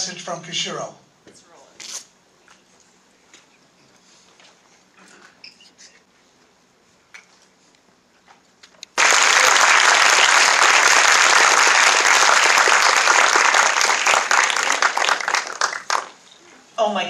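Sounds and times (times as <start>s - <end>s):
audience applauding: 9.0s - 16.2s.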